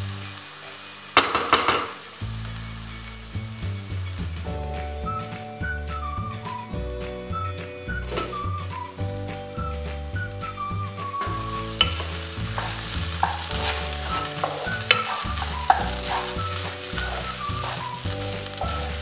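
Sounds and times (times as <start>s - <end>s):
background music: 0.0s - 19.0s
food sizzling: 0.0s - 19.0s
spatula knocking against pan: 1.2s - 1.9s, 11.7s - 17.8s
spatula scraping a pan: 11.2s - 19.0s.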